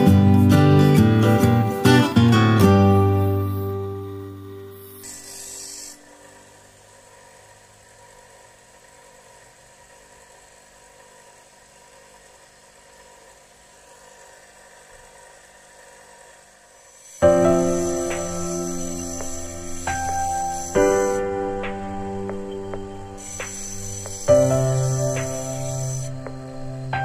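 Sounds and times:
music: 0:00.0 - 0:06.0, 0:17.2 - 0:27.0
bench grinder motor running: 0:00.0 - 0:27.0
brief hiss: 0:23.2 - 0:26.1.

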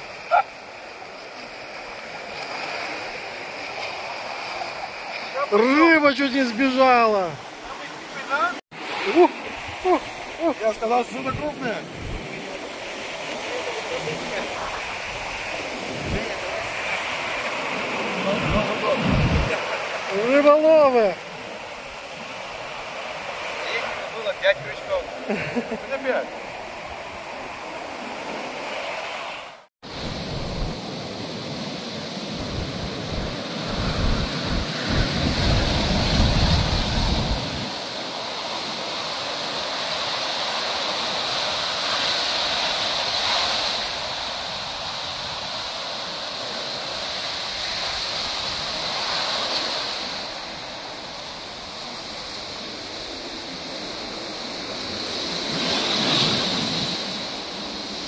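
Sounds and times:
waves breaking on beach: 0:00.0 - 0:58.0
wind buffeting microphone: 0:09.4 - 0:20.0, 0:29.8 - 0:38.0.

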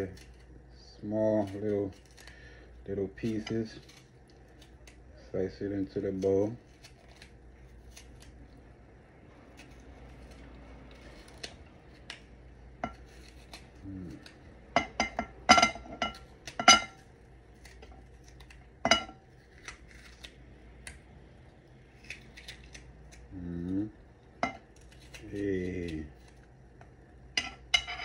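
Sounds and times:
knife slicing pepper: 0:09.4 - 0:15.2.

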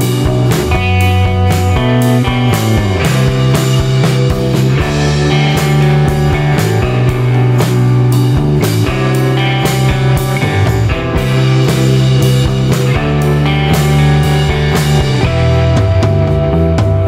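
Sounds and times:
rock music with guitar and drums: 0:00.0 - 0:17.0.

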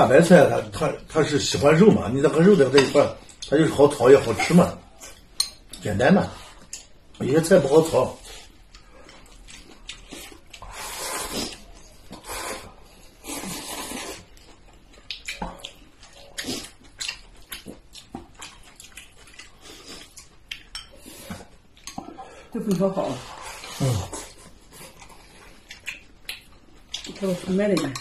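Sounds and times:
chewing: 0:08.3 - 0:22.3, 0:23.2 - 0:28.0.

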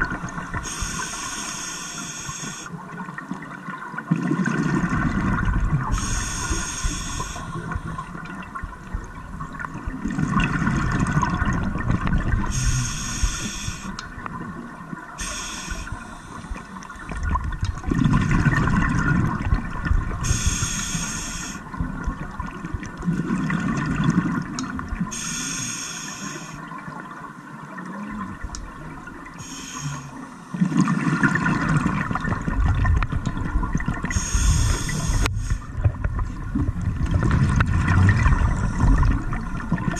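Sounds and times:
exhaled bubbles rumbling: 0:00.0 - 0:01.0, 0:02.8 - 0:20.8, 0:21.6 - 0:25.1, 0:26.8 - 0:29.4, 0:30.5 - 0:39.9
regulator hissing inhalations: 0:00.6 - 0:02.7, 0:06.0 - 0:07.7, 0:12.5 - 0:14.0, 0:15.2 - 0:16.6, 0:20.2 - 0:21.6, 0:25.1 - 0:26.6, 0:29.4 - 0:30.2, 0:34.1 - 0:35.7.

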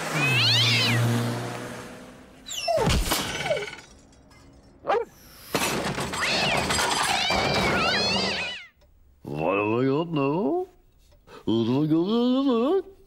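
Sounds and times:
cartoon crash: 0:02.7 - 0:03.8, 0:05.5 - 0:08.7.

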